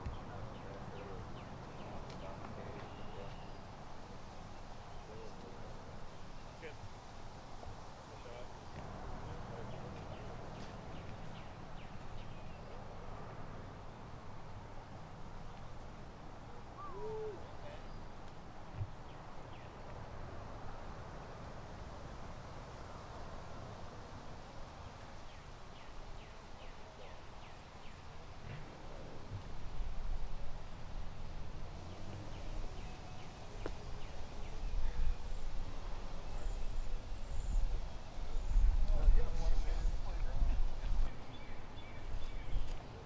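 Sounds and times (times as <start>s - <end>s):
outdoor background noise: 0.0s - 43.0s
faint bird chirps: 2.8s - 3.7s
bird call with hoot-like note: 16.8s - 17.8s
wind rumble on microphone: 33.5s - 42.8s.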